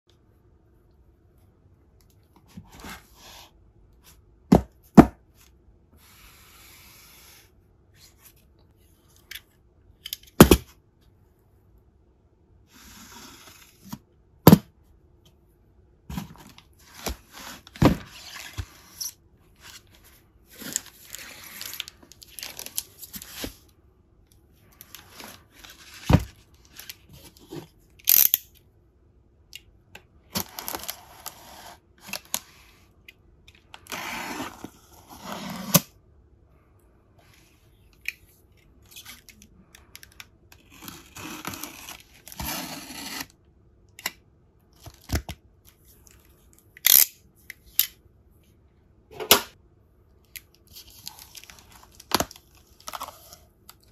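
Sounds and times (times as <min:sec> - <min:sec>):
cardboard rustling and scraping: 0:16.1 - 0:23.6.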